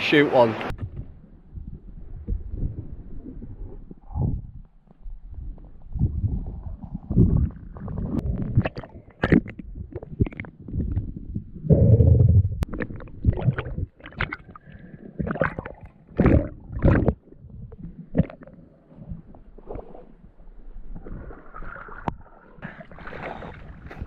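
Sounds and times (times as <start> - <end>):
water sloshing underwater: 0.6 - 24.0
water splashing and lapping: 12.6 - 24.0.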